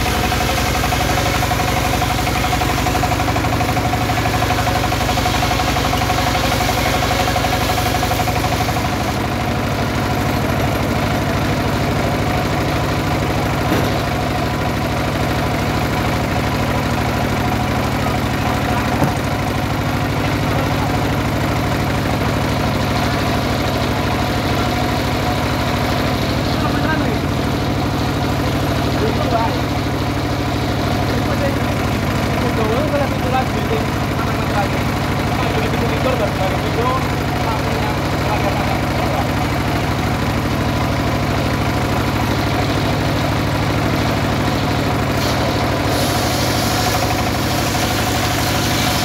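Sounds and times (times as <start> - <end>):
circular saw cutting log: 0.0 - 21.0, 43.9 - 49.0
diesel engine running: 0.0 - 49.0
short knocks: 19.0 - 19.2.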